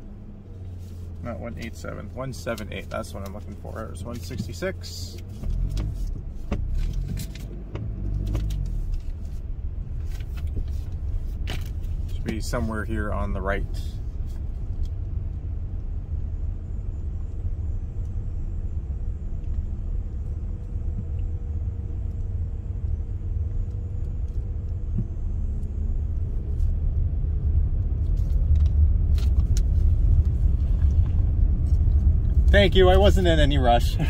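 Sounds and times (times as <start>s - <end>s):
vehicle engine and road rumble: 0.0s - 34.0s.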